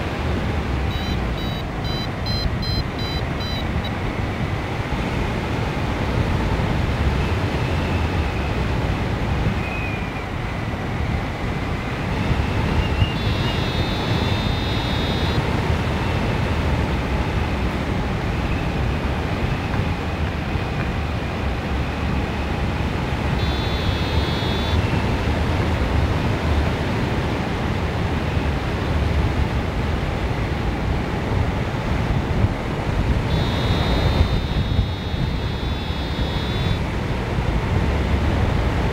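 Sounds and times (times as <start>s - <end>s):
wind rushing over microphone: 0.0s - 38.9s
high electronic beeping: 0.9s - 3.7s, 13.2s - 15.4s, 23.4s - 24.8s, 33.3s - 36.8s.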